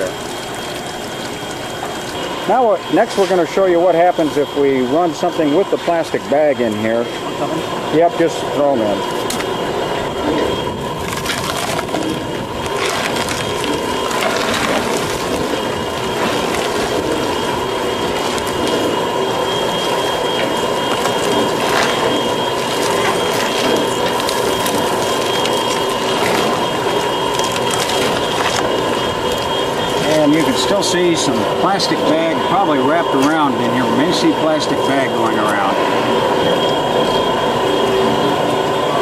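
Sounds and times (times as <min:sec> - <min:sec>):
produce waste cracking and crunching: 0:00.0 - 0:04.3, 0:08.6 - 0:35.7
shredder press whining: 0:07.4 - 0:39.0.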